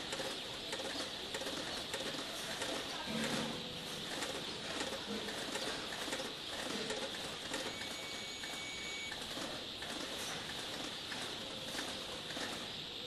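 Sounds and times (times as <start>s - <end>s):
thin steady high tone: 7.5s - 9.2s.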